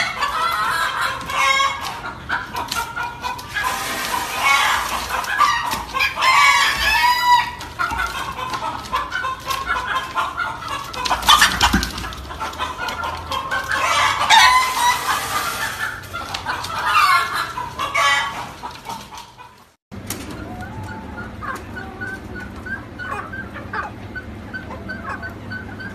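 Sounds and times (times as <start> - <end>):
birds calling: 0.0 - 25.9
chickens calling: 0.0 - 25.9.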